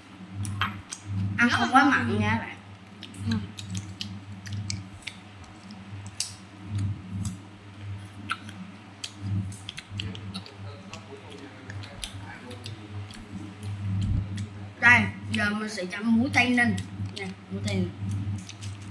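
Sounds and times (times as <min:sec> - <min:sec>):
chewing crunchy fruit: 0:02.7 - 0:07.4, 0:08.0 - 0:14.6, 0:16.3 - 0:18.9
mouth clicks: 0:08.1 - 0:14.5.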